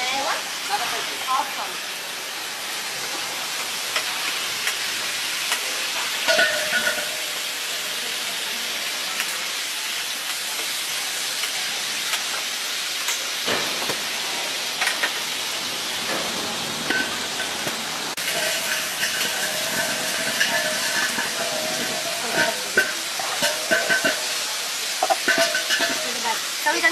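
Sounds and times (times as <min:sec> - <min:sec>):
sausages sizzling in a pan: 0:00.0 - 0:26.9
metal tongs clicking on pan: 0:18.3 - 0:26.2.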